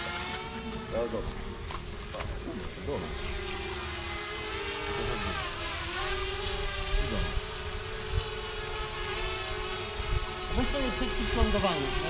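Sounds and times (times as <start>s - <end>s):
drone propellers whining: 0.0s - 12.0s.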